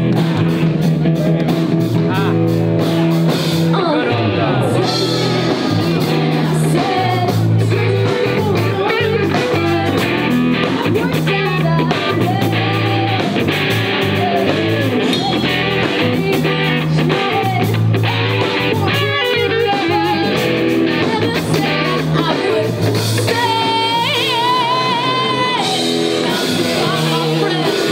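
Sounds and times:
drum kit: 0.0 - 27.9
electric guitar: 0.0 - 27.9
person singing: 3.6 - 27.9.

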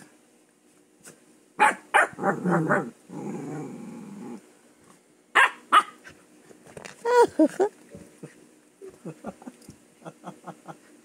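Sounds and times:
puppy barking: 1.6 - 2.9, 5.4 - 6.0
puppy growling: 2.0 - 4.4.

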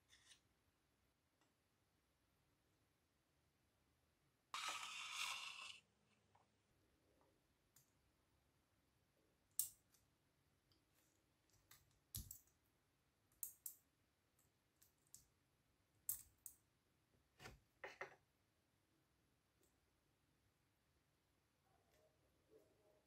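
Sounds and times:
tweezers clicking on plastic: 13.3 - 13.8.

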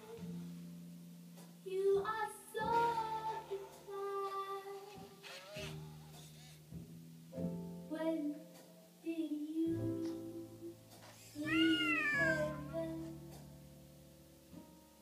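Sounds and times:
background music with held notes: 0.0 - 15.0
robotic cat meow: 11.4 - 12.7.

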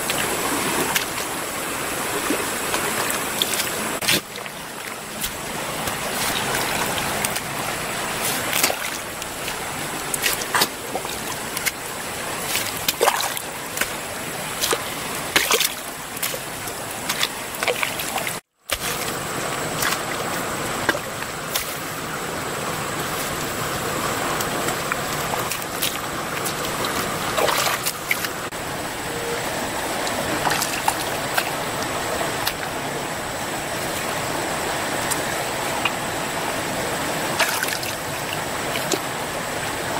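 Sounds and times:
muddy water sloshing: 0.0 - 39.9
running water hiss: 0.0 - 39.9
wet mud splats: 2.2 - 22.1, 23.0 - 28.5, 37.3 - 39.1
digging tool scraping wet mud: 3.4 - 11.8, 18.7 - 20.1.

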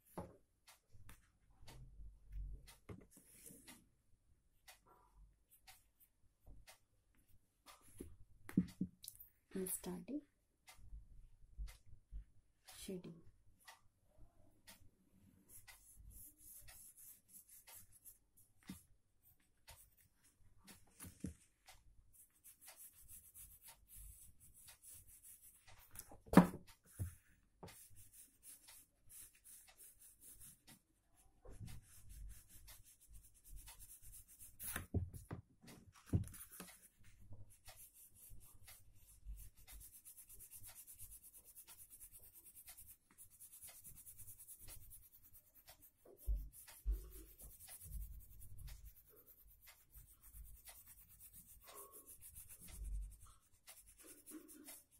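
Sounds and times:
pencil scratching on paper: 15.4 - 35.3, 36.0 - 54.9.

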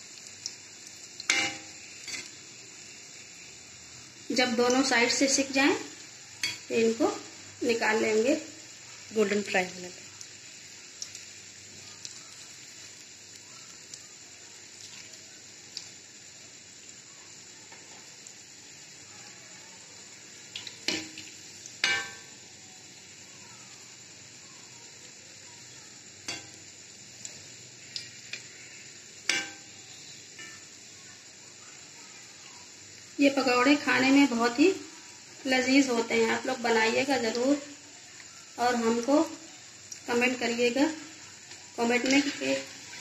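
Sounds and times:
food sizzling in deep oil: 0.0 - 43.0
metal spoon knocking pan: 1.3 - 2.3, 21.8 - 22.2, 26.3 - 26.6, 29.3 - 29.7.

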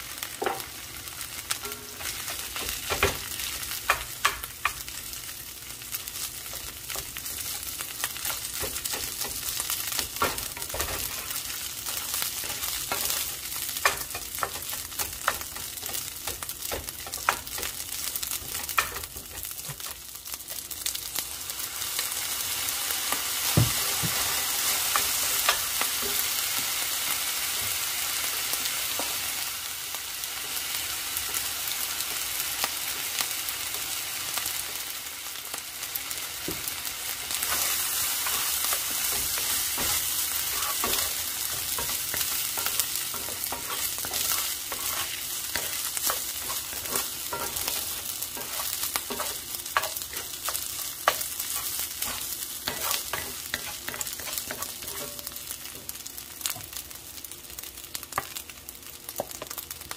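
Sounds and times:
fried rice sizzling in oil: 0.0 - 59.9
spatula scraping and tapping pan: 8.2 - 17.8, 37.4 - 55.9.

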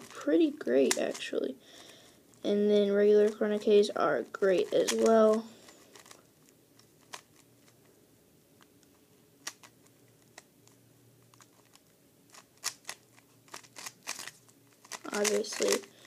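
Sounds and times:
speed cube clicking: 0.1 - 1.2, 4.5 - 6.2, 7.0 - 7.5, 9.4 - 10.5, 11.4 - 16.0.

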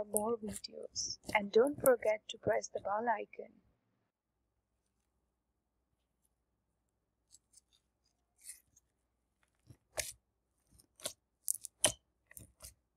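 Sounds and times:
slime crackling and popping: 9.6 - 12.8.

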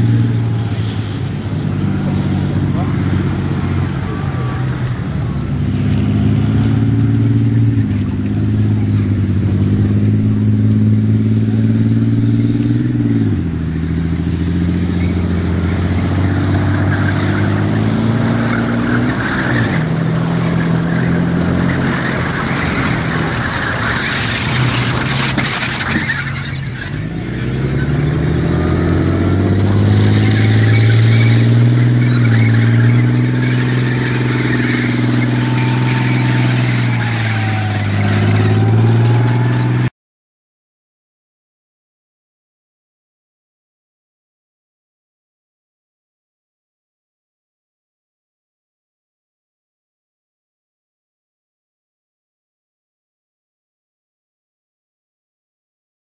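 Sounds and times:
rising whine: 0.0 - 19.1
tank diesel engine running: 0.0 - 39.9.

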